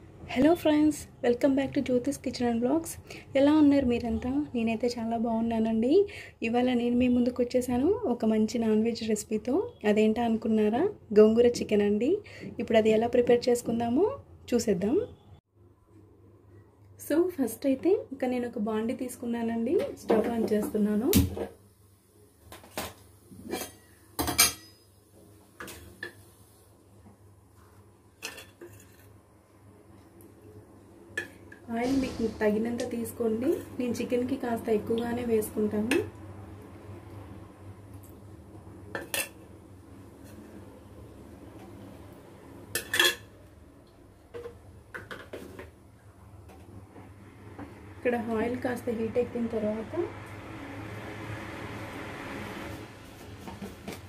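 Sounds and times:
pots and utensils clinking: 0:22.6 - 0:24.9, 0:28.2 - 0:29.1, 0:42.7 - 0:43.3.

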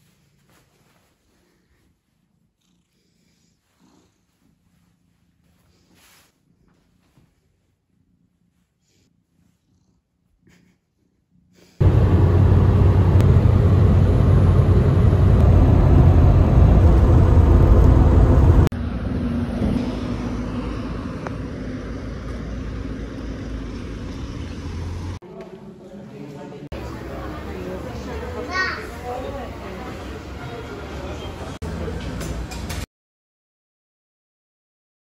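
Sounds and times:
car road and wind rumble: 0:11.8 - 0:25.2.

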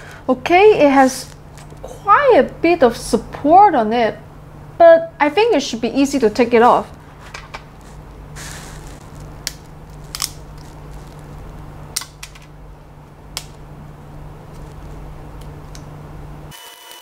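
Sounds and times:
low hum: 0:00.0 - 0:16.5
flush cutters snipping: 0:08.7 - 0:11.2.

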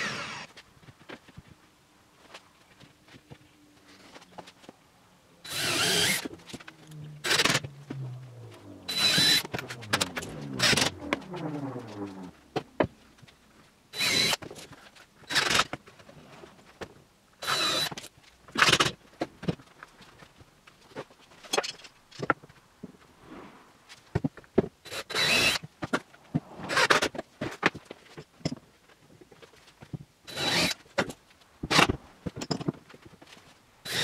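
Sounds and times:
cordless drill driving screws: 0:00.0 - 0:00.5, 0:05.4 - 0:06.3, 0:08.9 - 0:11.0, 0:14.0 - 0:14.4, 0:17.4 - 0:18.0, 0:24.9 - 0:25.6, 0:30.3 - 0:30.8.

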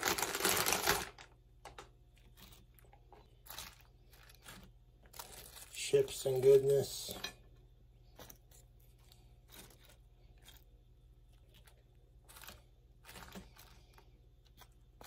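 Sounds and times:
low steady hum: 0:00.0 - 0:15.0
faint crackles and rustles: 0:00.2 - 0:06.5.

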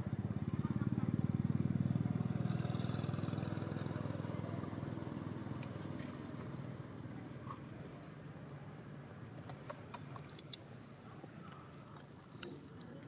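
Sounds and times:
small engine droning: 0:00.0 - 0:08.0.

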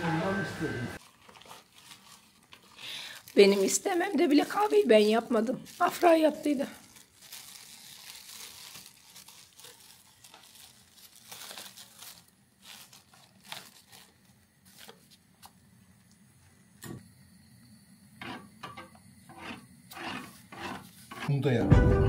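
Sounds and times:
faint rustling and crinkling: 0:01.0 - 0:16.2.

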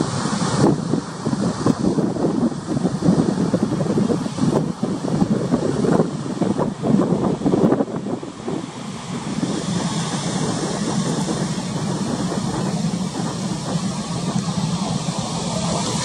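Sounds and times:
choppy sea: 0:00.0 - 0:16.0
wind buffeting microphone: 0:00.0 - 0:16.0
low even drone: 0:08.1 - 0:16.0.

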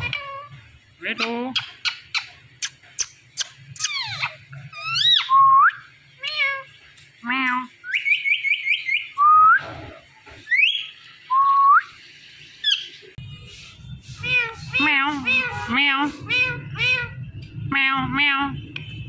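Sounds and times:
parakeet whistling and chattering: 0:00.0 - 0:06.7, 0:07.8 - 0:09.6, 0:10.4 - 0:17.2.

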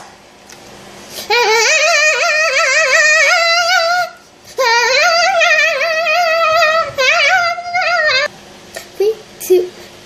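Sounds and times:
girl singing with vibrato: 0:01.2 - 0:08.3.

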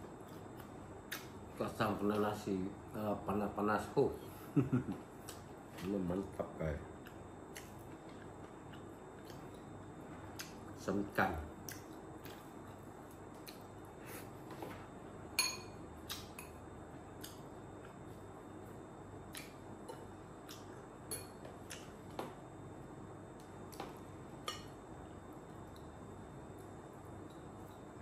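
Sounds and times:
spoon clinking on ceramic plates: 0:15.4 - 0:15.8.

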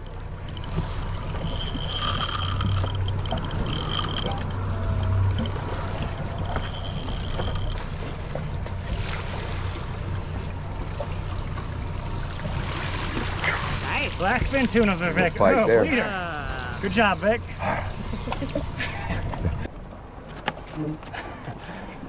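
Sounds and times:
water noise: 0:00.0 - 0:22.0
wind: 0:00.0 - 0:22.0
fishing reel cranking: 0:00.4 - 0:08.2.

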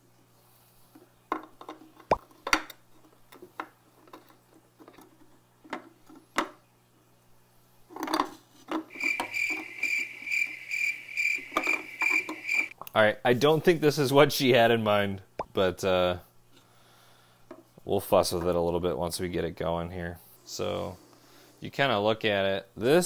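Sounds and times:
cricket chirping: 0:08.9 - 0:12.7.

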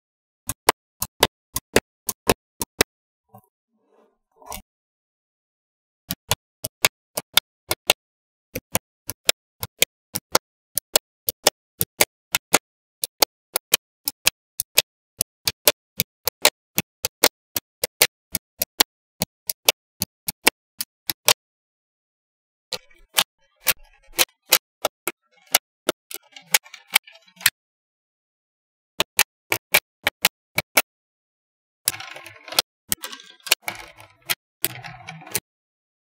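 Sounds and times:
magnetic balls clicking together: 0:31.9 - 0:35.4.

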